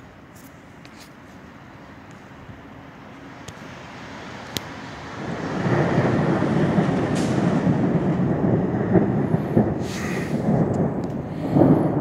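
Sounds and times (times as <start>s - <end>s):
rolling thunder: 4.9s - 12.0s.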